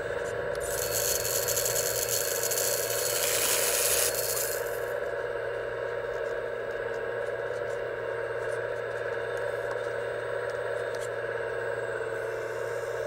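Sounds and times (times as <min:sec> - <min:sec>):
hydraulic pump running: 0:00.0 - 0:05.0.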